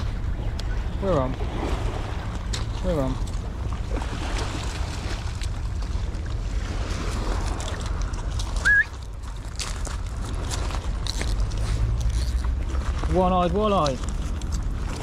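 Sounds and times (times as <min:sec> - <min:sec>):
wind rumbling on microphone: 0:00.0 - 0:15.0
waves washing onto shingle: 0:01.0 - 0:15.0
handling clicks and crunches: 0:07.6 - 0:14.7.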